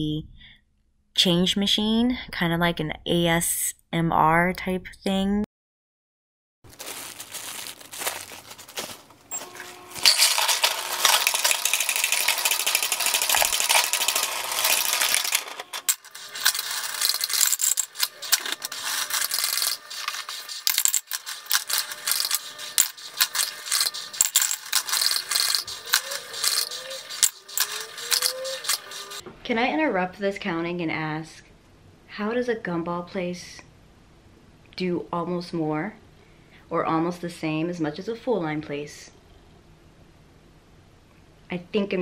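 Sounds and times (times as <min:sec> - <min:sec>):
coins rattling in counting machine: 0:07.3 - 0:29.2.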